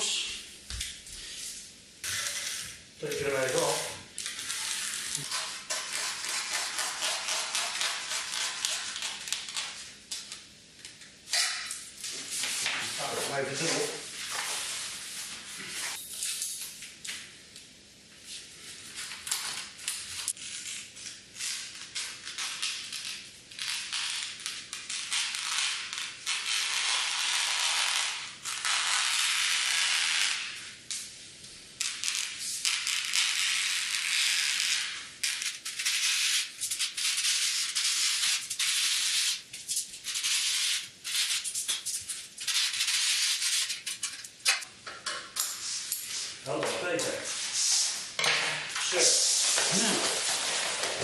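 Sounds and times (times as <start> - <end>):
scissors cutting fabric: 4.4 - 9.7.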